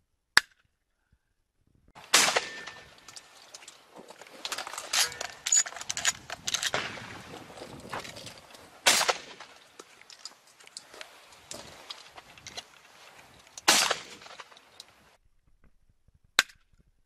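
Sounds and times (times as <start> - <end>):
shotgun shots: 2.0 - 3.1, 6.5 - 7.4, 8.8 - 9.6, 13.6 - 14.4
rustling in dry grass: 2.0 - 15.2.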